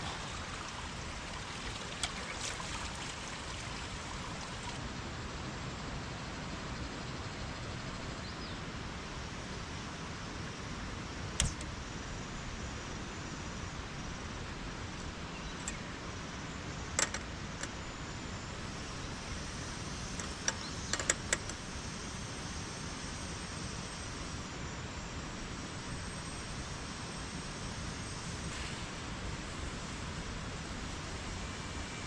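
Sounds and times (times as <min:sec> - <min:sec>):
running water hiss: 0:00.0 - 0:04.8
sharp clicks: 0:11.4 - 0:11.7.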